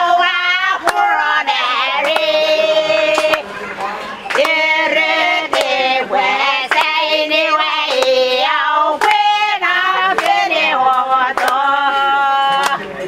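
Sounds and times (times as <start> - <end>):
group singing in high voices: 0.0 - 13.0
sharp clap or slap: 11.4 - 11.6.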